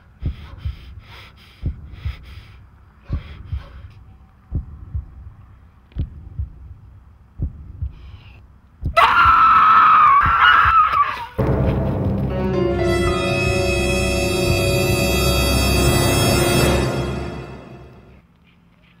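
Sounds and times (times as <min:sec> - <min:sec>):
faint breaths: 0:00.0 - 0:04.7, 0:07.8 - 0:08.5
slow heartbeat: 0:00.0 - 0:09.5
woman screaming: 0:09.0 - 0:11.4.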